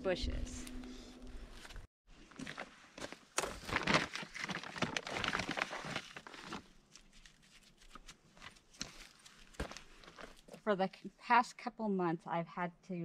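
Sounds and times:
bag crinkling and rustling: 0:02.3 - 0:10.6.

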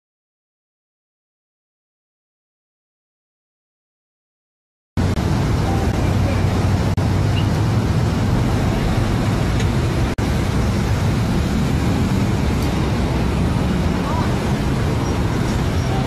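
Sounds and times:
vehicle engine and road noise: 0:05.0 - 0:16.0.

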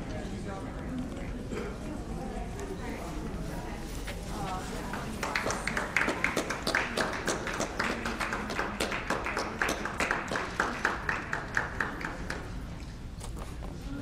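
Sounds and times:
spectators clapping in rhythm: 0:04.9 - 0:12.7.

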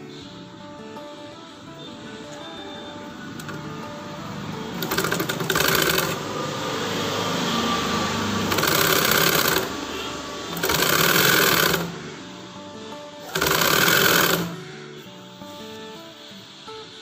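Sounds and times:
sewing machine stitching: 0:03.3 - 0:03.7, 0:04.6 - 0:12.1, 0:13.2 - 0:14.6.

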